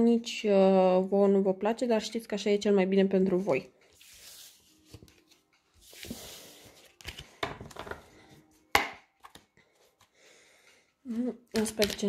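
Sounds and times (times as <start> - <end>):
cards sliding on cloth: 3.9 - 7.3
cards tapping: 8.7 - 9.5, 11.5 - 12.0.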